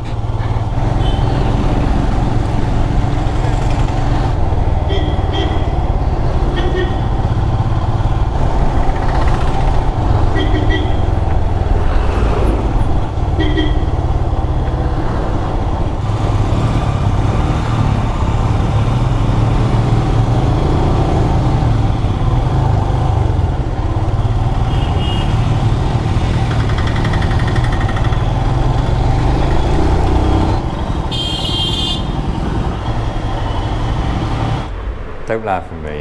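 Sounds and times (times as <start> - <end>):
motorcycle engine rumble: 0.0 - 34.9
horn beeping: 6.5 - 7.2, 10.3 - 11.2, 13.2 - 14.2, 30.9 - 32.2.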